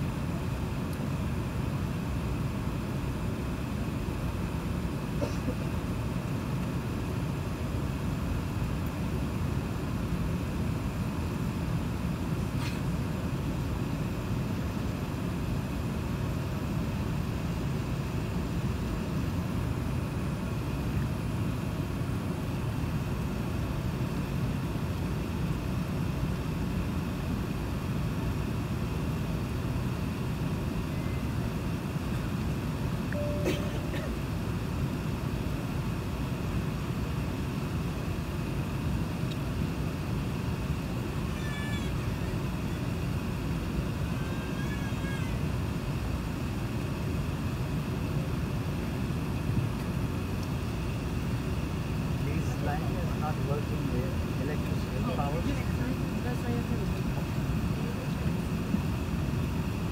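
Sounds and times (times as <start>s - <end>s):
aircraft cabin rumble: 0.0s - 59.9s
faint wavering high sounds: 33.1s - 34.4s.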